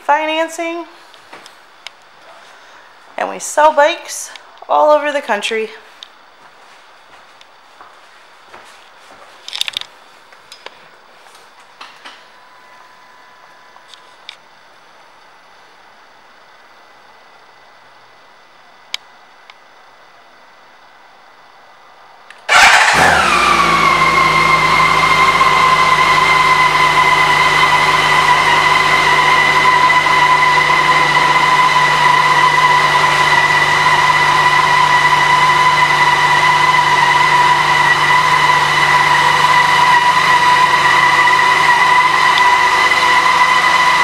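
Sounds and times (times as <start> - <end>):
motorcycle engine starting and idling: 22.4 - 44.0
whine over exhaust note: 22.5 - 44.0.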